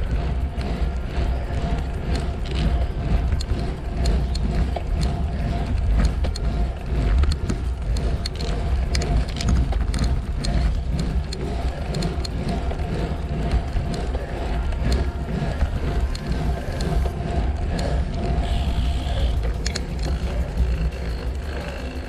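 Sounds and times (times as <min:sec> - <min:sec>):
wind rumbling on microphone: 0:00.0 - 0:21.2.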